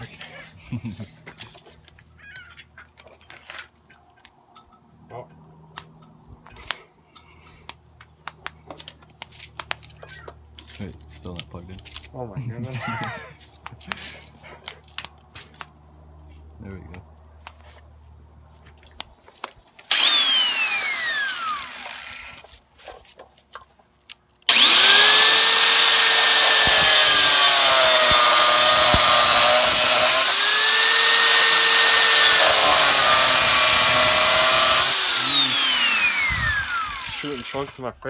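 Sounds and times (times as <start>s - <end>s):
grinder disc spinning down: 19.9s - 22.4s, 24.5s - 37.8s
angle grinder whining: 19.9s - 22.5s, 24.5s - 37.8s.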